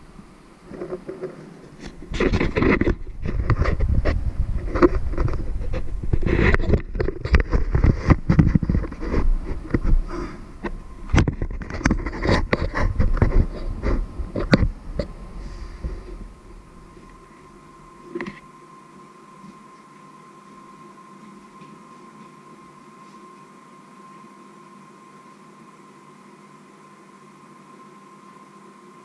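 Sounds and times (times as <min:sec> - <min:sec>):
fingers rubbing and knocking: 0:00.7 - 0:17.3.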